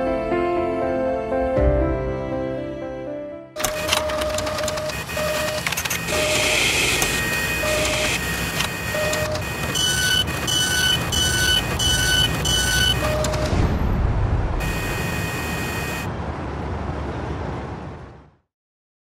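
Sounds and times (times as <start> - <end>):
clicks and short tones: 3.6 - 13.6
electronic beeps: 3.6 - 13.6, 14.6 - 16.1
mechanical running noise: 3.6 - 13.6.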